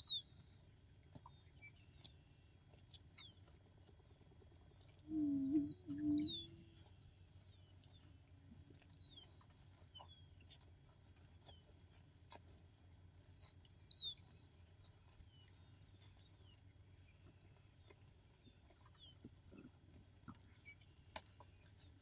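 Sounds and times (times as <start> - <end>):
songbird chirping: 0.0 - 12.1, 12.7 - 22.0
steady low hum: 0.0 - 13.3
bird high trill: 5.1 - 6.7.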